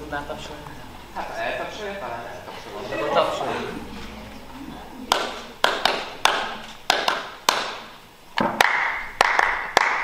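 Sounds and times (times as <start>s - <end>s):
hand claps with echo: 5.1s - 10.0s.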